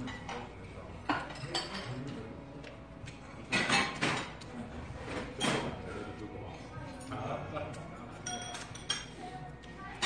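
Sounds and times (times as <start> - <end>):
chopsticks clinking on dishes: 0.0 - 4.5, 8.1 - 10.0.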